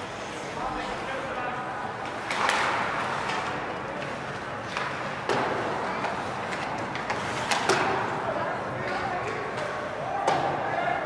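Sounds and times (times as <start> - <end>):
hockey stick cracking puck: 2.1 - 8.1.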